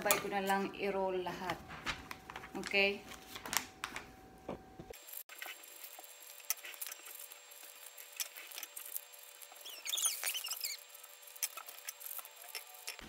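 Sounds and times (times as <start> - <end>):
paper rustling: 1.5 - 4.1
high squeaky chirps: 9.4 - 11.7.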